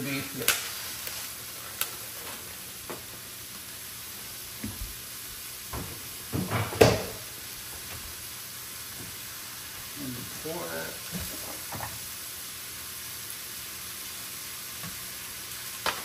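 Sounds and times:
meat sizzling in frying pans: 0.0s - 16.0s
kitchen knocks and clunks: 5.7s - 8.0s, 11.1s - 12.0s.

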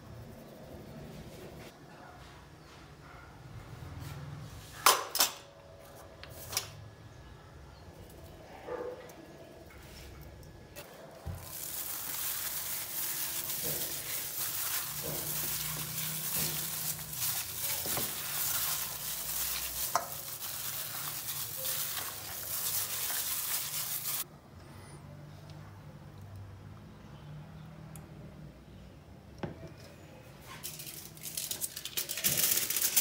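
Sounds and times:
plastic glove rustling: 10.8s - 24.2s, 30.6s - 33.0s.

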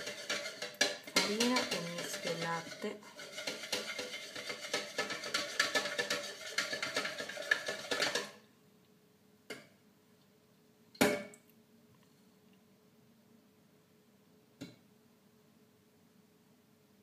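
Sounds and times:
metal sieve rattling: 0.0s - 8.3s
spoon and sieve knocking jug: 0.0s - 8.4s.

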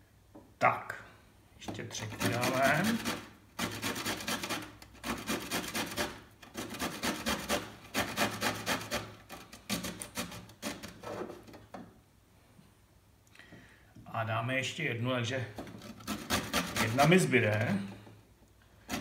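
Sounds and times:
grating on metal box grater: 1.9s - 11.6s, 15.7s - 17.8s.

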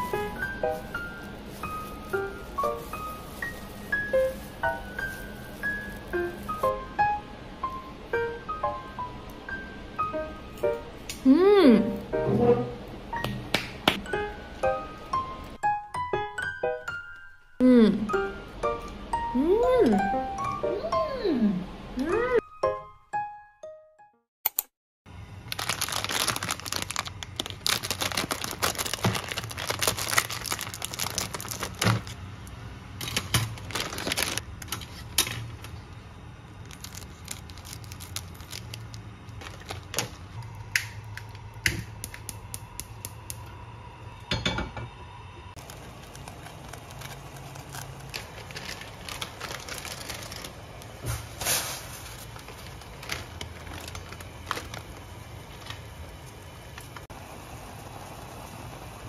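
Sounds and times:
plastic packets crinkling and tearing: 0.0s - 6.7s, 25.4s - 32.2s, 33.0s - 35.4s, 36.6s - 41.3s, 45.6s - 57.1s
steady low hum: 25.1s - 59.0s.

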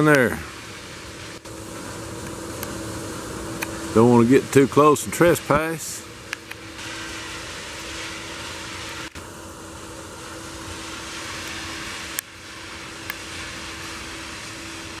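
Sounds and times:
rail machine droning: 0.0s - 15.0s.

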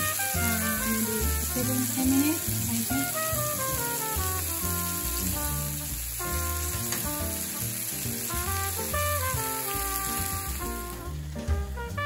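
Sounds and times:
background music: 0.0s - 12.0s
chicken sizzling in a frying pan: 0.0s - 12.0s.

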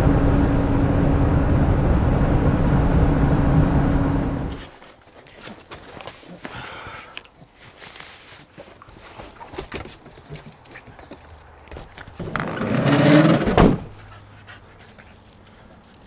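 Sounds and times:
sliding van door rumbling shut: 12.2s - 14.0s
van door slamming: 13.3s - 14.0s.

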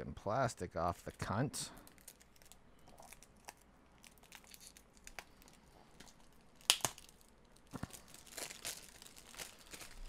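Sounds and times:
shrink-wrap crackling and tearing: 1.8s - 10.0s
sharp plastic cracks: 6.0s - 10.0s.

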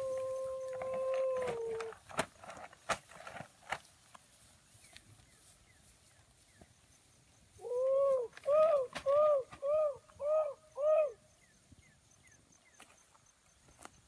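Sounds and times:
bird cooing: 7.6s - 11.2s.

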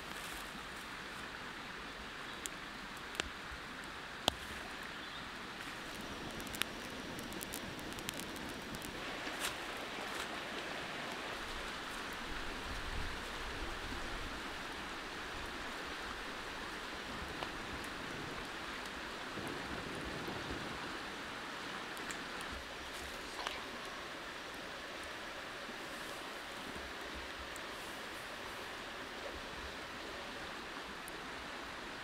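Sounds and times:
wood fire hissing: 5.6s - 32.0s
fire crackling pops: 5.7s - 10.3s.

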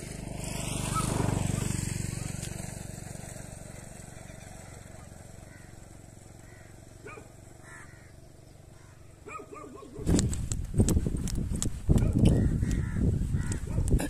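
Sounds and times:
vehicle engine passing by: 0.0s - 10.1s.

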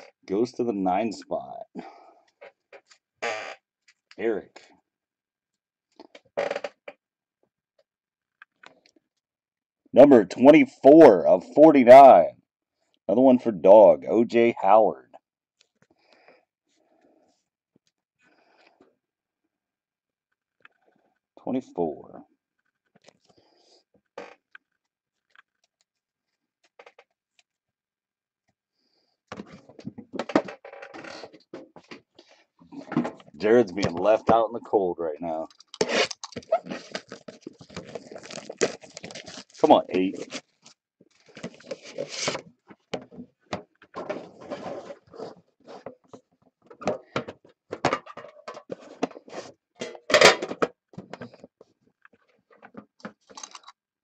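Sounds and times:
card boxes clattering and scraping: 41.2s - 42.4s, 44.0s - 45.9s.

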